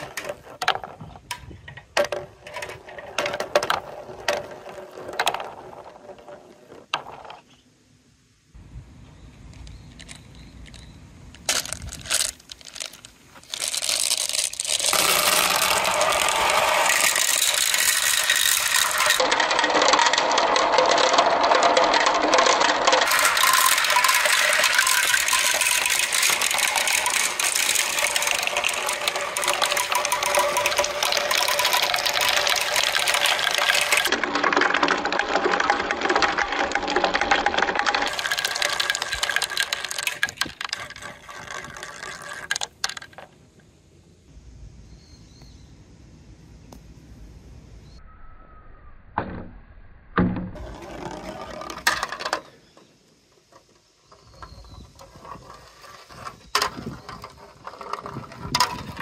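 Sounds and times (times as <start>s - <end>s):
balls rattling down plastic chutes: 0.0s - 7.5s, 9.5s - 43.5s, 50.5s - 59.0s.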